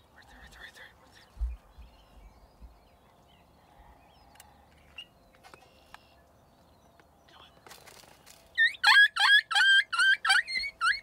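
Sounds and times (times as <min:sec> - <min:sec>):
faint birdsong: 0:00.0 - 0:11.0.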